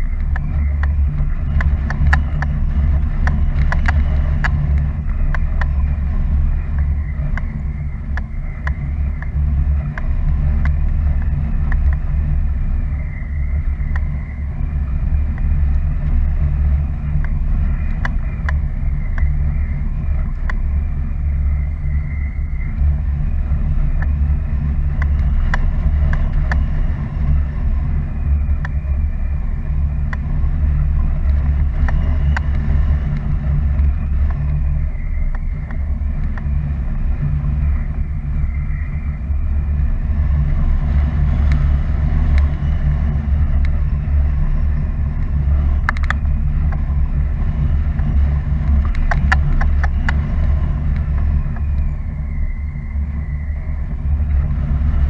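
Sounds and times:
wind buffeting microphone: 0:00.0 - 0:55.0
light clicks: 0:45.2 - 0:51.9.

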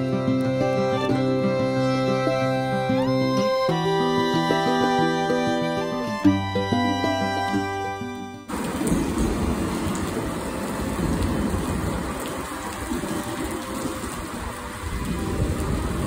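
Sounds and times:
rain on wet pavement: 0:08.4 - 0:16.0.

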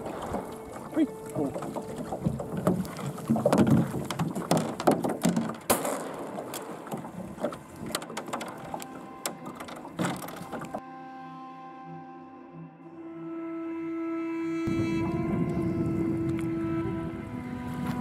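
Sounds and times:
music: 0:00.0 - 0:03.4, 0:07.4 - 0:18.0
gear knocking in a boat: 0:00.0 - 0:10.8
waves slapping boat hull: 0:00.0 - 0:10.8, 0:14.7 - 0:18.0.

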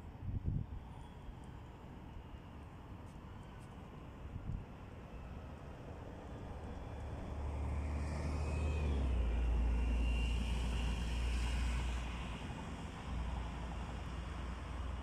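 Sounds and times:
vehicle passing by: 0:07.3 - 0:11.6.

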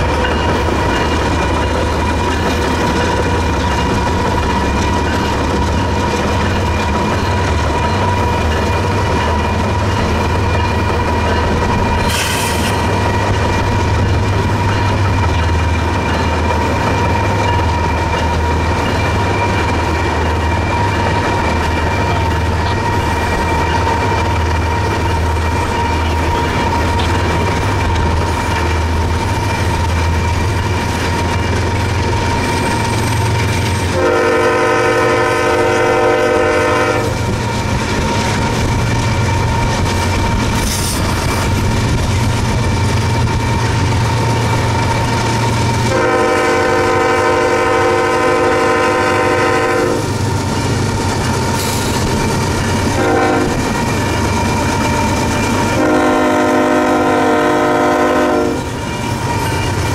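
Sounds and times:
freight train rumbling: 0:00.0 - 0:59.9
locomotive horn blasts: 0:33.9 - 0:37.2, 0:45.9 - 0:50.1, 0:53.0 - 0:53.6, 0:55.7 - 0:58.7.

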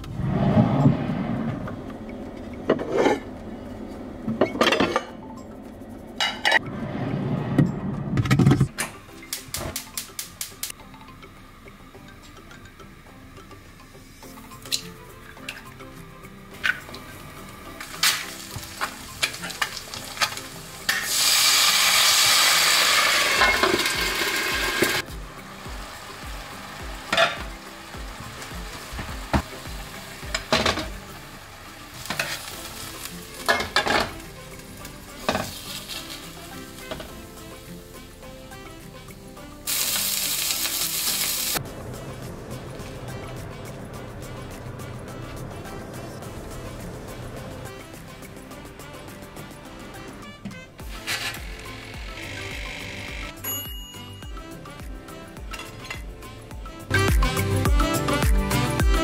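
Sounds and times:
cookware clinking and clattering: 0:02.7 - 0:03.3, 0:04.3 - 0:05.2, 0:06.2 - 0:06.6, 0:23.2 - 0:25.0, 0:27.1 - 0:27.4, 0:30.3 - 0:31.0, 0:32.0 - 0:32.5, 0:33.4 - 0:34.2, 0:35.2 - 0:36.3
eggs frying crackling and popping: 0:08.9 - 0:10.9, 0:11.7 - 0:50.2
water hissing in hot pan: 0:17.8 - 0:43.4.

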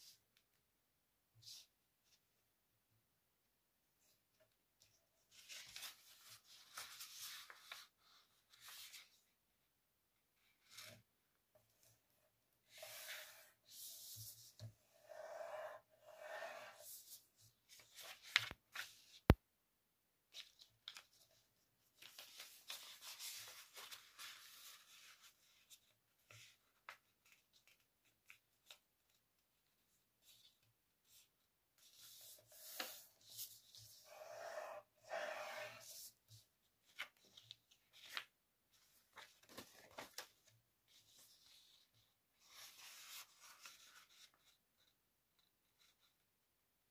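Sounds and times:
paper rustling and creasing: 0:04.9 - 0:09.3, 0:16.8 - 0:19.2, 0:20.3 - 0:34.5, 0:35.1 - 0:44.9.

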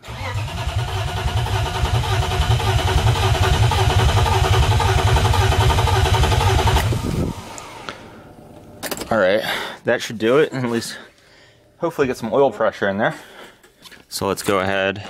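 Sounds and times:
starter motor cranking engine: 0:00.0 - 0:07.9.

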